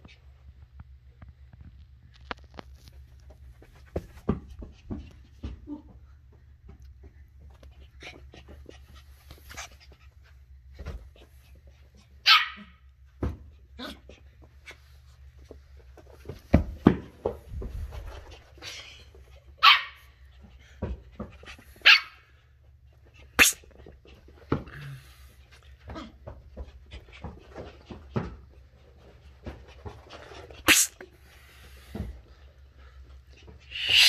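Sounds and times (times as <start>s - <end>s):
puppy yapping: 12.2s - 12.8s.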